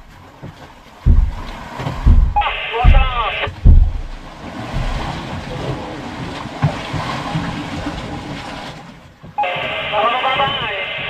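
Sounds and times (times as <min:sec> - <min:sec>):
low wind rumble: 0:00.9 - 0:08.6.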